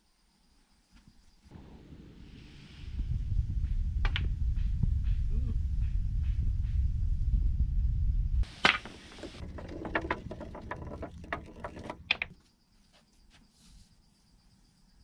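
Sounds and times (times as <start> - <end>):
low rumble: 1.5 - 8.4
billiard balls clicking and rolling: 8.4 - 12.4
cue striking billiard ball: 8.6 - 12.4.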